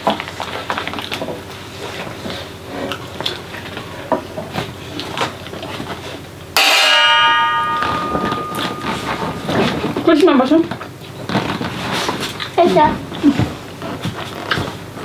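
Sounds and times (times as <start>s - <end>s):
clinks and scrapes on metal plates: 6.6s - 9.8s
loud ringing of steady pitches: 6.6s - 10.1s.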